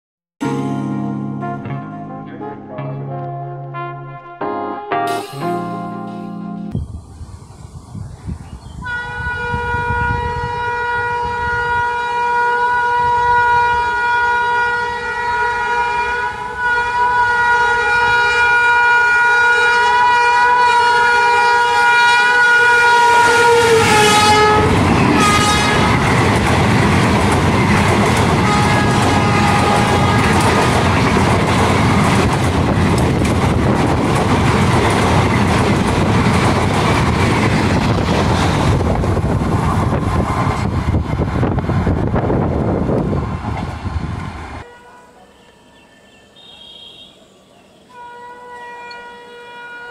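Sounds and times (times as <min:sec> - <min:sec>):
train horn blast: 0:01.4 - 0:02.5, 0:03.5 - 0:04.5, 0:08.8 - 0:26.4, 0:27.5 - 0:31.1, 0:44.6 - 0:47.2, 0:47.9 - 0:49.9
train wheels on rails: 0:23.1 - 0:44.7.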